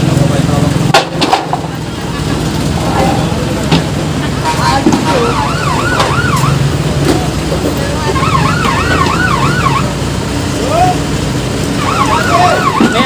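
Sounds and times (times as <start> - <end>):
electronic siren yelping: 5.1 - 6.6, 8.0 - 10.0, 11.8 - 13.0.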